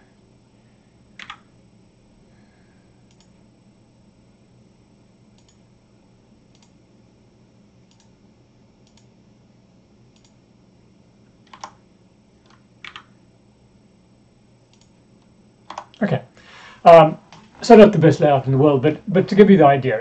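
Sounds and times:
faint steady hum: 0.0s - 20.0s
computer mouse and keyboard clicks: 1.2s - 1.4s, 3.1s - 3.3s, 5.4s - 5.6s, 7.9s - 8.1s, 10.1s - 10.4s, 11.4s - 11.8s, 12.4s - 13.1s, 15.7s - 16.0s.

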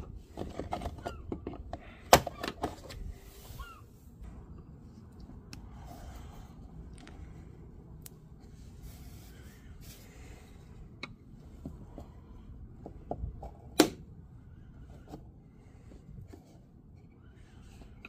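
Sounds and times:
pry tools scraping plastic: 0.0s - 3.1s.

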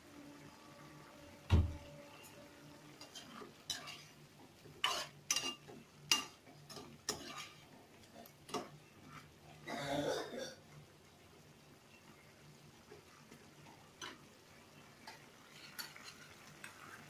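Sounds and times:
spatula scraping a pan: 2.9s - 9.6s, 15.0s - 17.0s.

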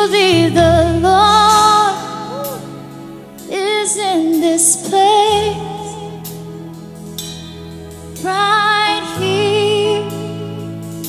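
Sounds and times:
woman singing with vibrato: 0.0s - 2.9s, 3.5s - 6.2s, 8.2s - 10.7s
band chords: 0.0s - 11.0s.

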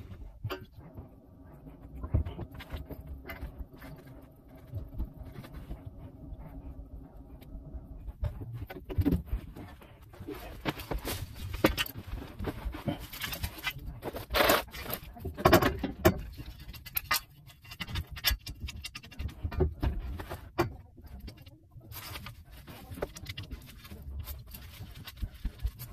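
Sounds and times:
scraping and rustling: 0.0s - 25.9s
tools and pipe fittings clicking: 15.4s - 19.8s.

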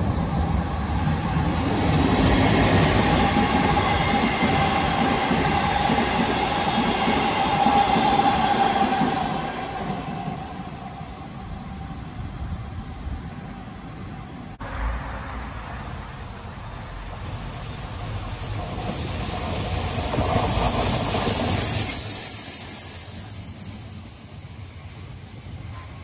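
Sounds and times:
train wheels rumbling on rails: 0.0s - 11.6s, 14.3s - 26.0s.

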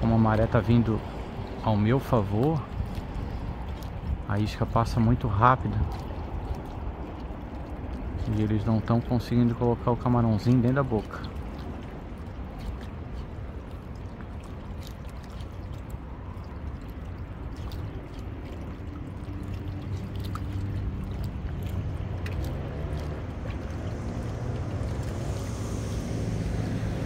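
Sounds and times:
low rumble: 0.0s - 27.0s
seawater washing among rocks: 0.0s - 27.0s.

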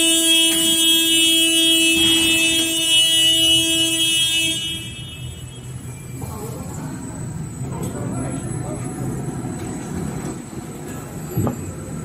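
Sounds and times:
electric warning horn: 0.0s - 6.0s.

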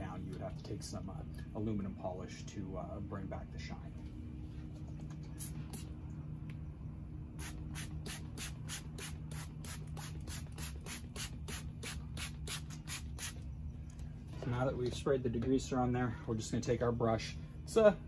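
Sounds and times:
low hum: 0.0s - 18.0s
spray bottle squirts: 7.4s - 13.4s.

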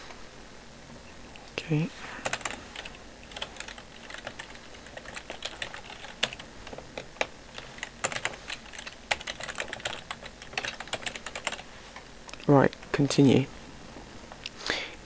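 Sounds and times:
typing on computer keyboard: 2.2s - 11.6s.

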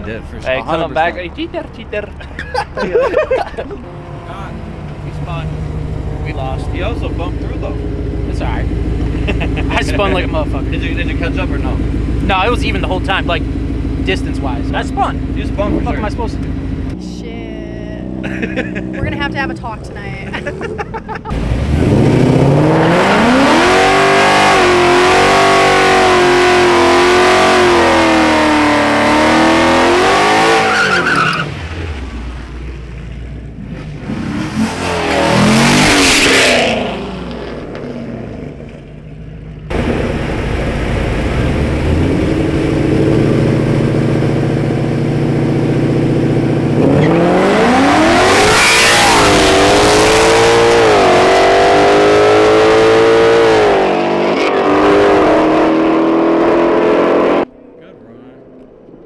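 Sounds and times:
car shifting through gears: 0.0s - 17.0s, 18.0s - 57.9s
car engines revving: 0.0s - 59.0s
car accelerating past: 21.3s - 32.8s, 39.7s - 57.5s.

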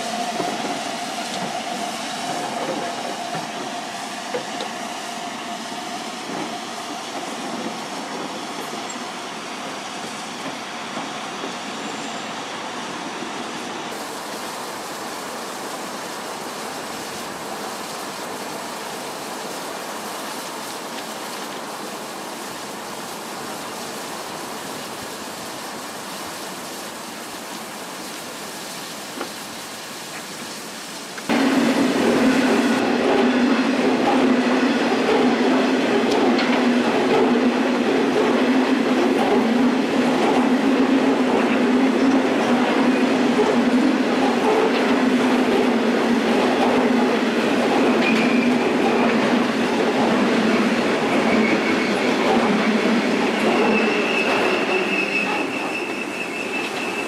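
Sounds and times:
passing train: 0.0s - 57.0s
steam hissing: 0.0s - 57.0s.

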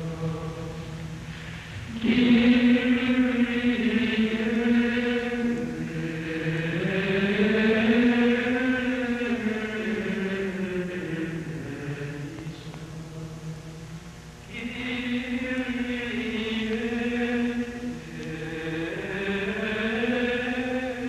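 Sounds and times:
men's choir singing a chant: 14.5s - 21.0s.

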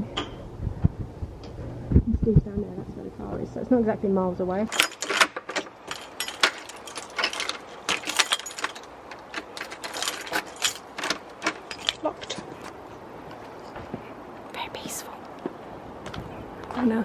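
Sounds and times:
keys jangling: 4.7s - 12.8s.

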